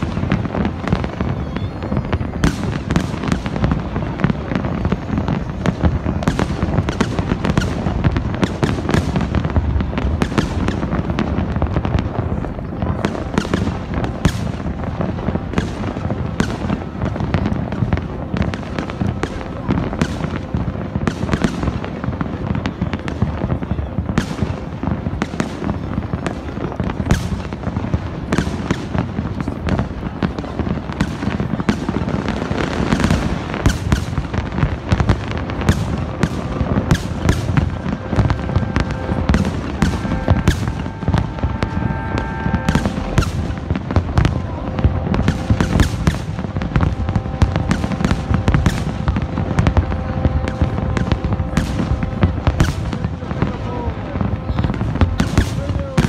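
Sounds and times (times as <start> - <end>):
fireworks bangs and crackles: 0.0 - 56.0
low rumble: 34.7 - 55.2.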